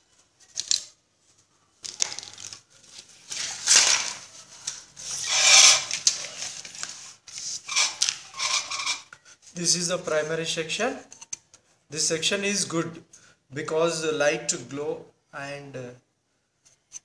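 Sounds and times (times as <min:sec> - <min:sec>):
rustling and scraping: 0:00.0 - 0:09.8.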